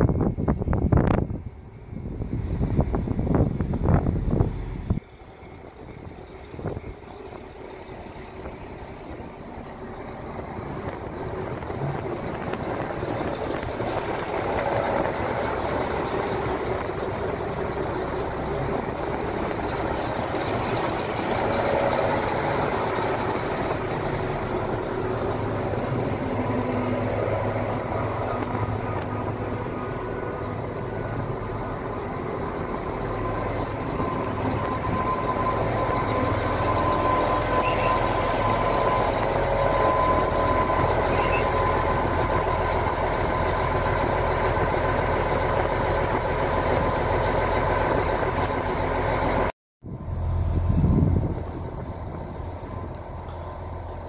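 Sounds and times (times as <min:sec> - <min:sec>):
train wheels rolling: 0:00.0 - 0:49.5
diesel engines running: 0:00.0 - 0:54.0
steady whine: 0:00.0 - 0:54.0.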